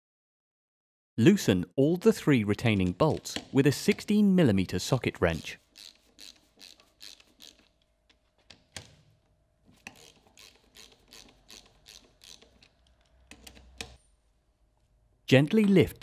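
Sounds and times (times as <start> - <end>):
socket ratchet clicking: 5.7 - 7.8, 9.8 - 14.0.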